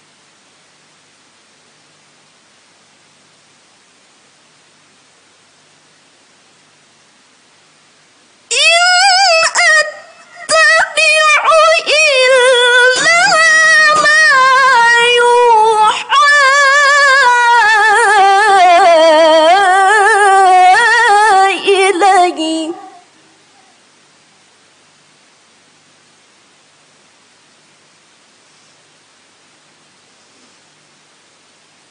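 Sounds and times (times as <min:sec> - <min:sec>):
faint hiss: 0:00.0 - 0:31.9
woman reciting melodically: 0:08.5 - 0:23.1.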